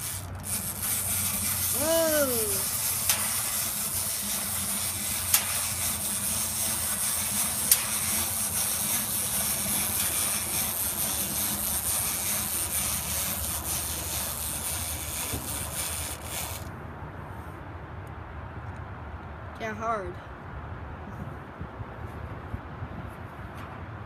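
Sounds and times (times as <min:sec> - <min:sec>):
clockwork toy whirring: 0:00.0 - 0:16.7.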